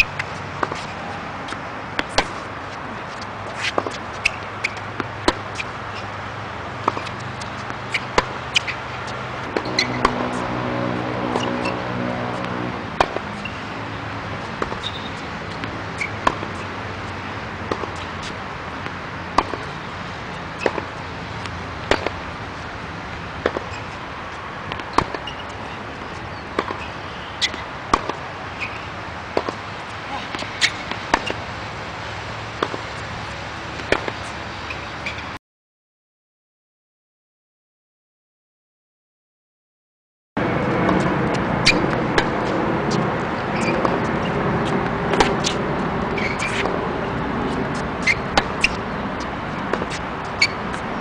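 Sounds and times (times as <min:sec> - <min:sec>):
outdoor background noise: 0:00.0 - 0:35.4, 0:40.4 - 0:51.0
tennis ball bounces: 0:01.5 - 0:02.5, 0:03.2 - 0:05.7, 0:06.8 - 0:13.6, 0:14.6 - 0:16.7, 0:17.7 - 0:19.7, 0:20.6 - 0:22.2, 0:23.4 - 0:24.0, 0:24.7 - 0:29.6, 0:30.3 - 0:31.4, 0:32.6 - 0:32.8, 0:33.8 - 0:34.2, 0:41.6 - 0:42.3, 0:45.1 - 0:46.8, 0:47.6 - 0:48.8, 0:49.6 - 0:50.8
low hum: 0:08.9 - 0:14.7
tennis racket strikes: 0:09.4 - 0:13.6.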